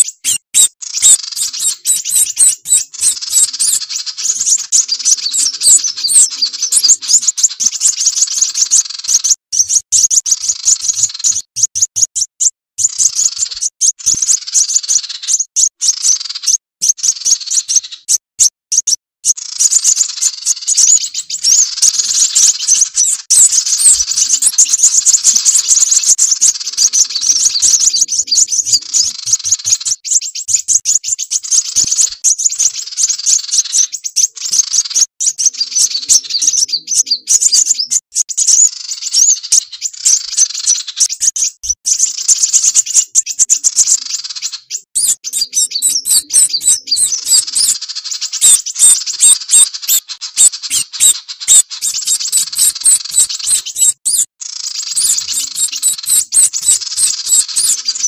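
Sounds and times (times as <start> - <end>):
small bird calling: 0.0 - 58.0
sunbirds chirping: 0.0 - 58.0.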